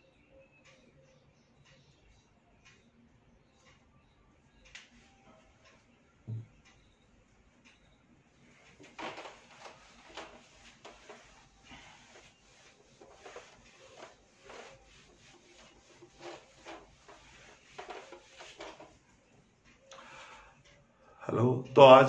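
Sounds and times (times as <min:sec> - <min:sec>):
eraser rubbing on whiteboard: 0:08.8 - 0:19.1.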